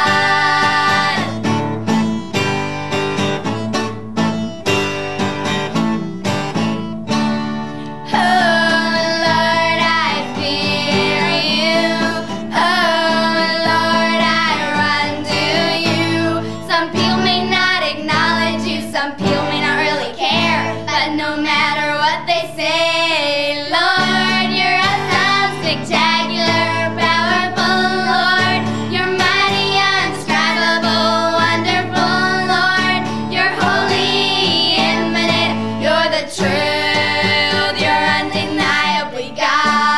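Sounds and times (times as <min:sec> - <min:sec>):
girls singing together: 0:00.0 - 0:01.6, 0:08.0 - 0:39.9
acoustic guitar strummed: 0:00.0 - 0:22.0, 0:23.8 - 0:39.9.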